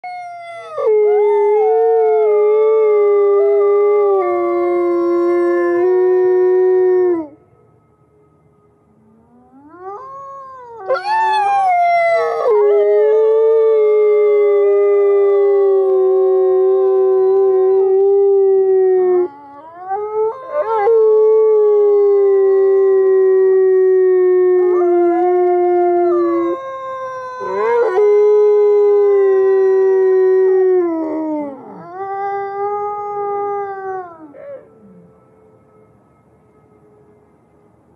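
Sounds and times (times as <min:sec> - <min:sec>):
wolf howling: 0:09.4 - 0:35.2.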